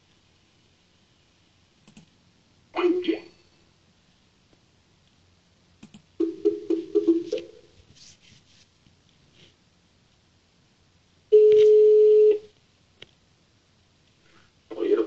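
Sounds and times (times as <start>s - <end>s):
telephone ringing tone: 11.3s - 12.4s.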